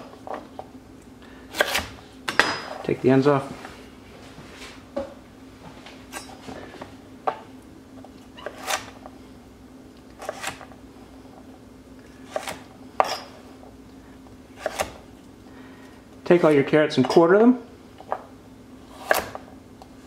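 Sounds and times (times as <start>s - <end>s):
faint steady hum: 0.0s - 20.0s
knife chopping on wooden board: 1.5s - 2.6s, 12.3s - 13.2s, 14.6s - 15.0s, 19.0s - 19.4s.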